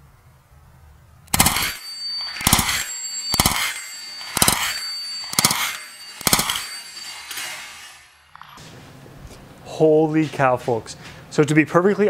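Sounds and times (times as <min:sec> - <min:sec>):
gunshots: 0:01.3 - 0:01.8, 0:02.4 - 0:03.7, 0:04.4 - 0:06.8
high ringing: 0:01.3 - 0:08.6.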